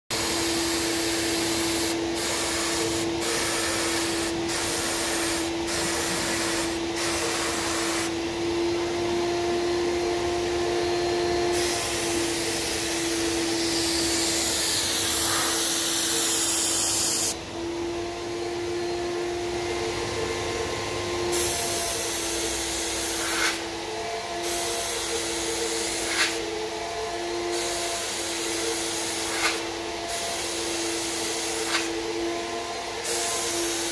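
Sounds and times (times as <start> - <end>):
spray gun hissing: 0.1 - 8.3, 11.5 - 17.4, 21.3 - 23.7, 24.4 - 26.4, 27.5 - 32.0, 33.0 - 33.9
paint sprayer turbine whine: 0.1 - 33.9.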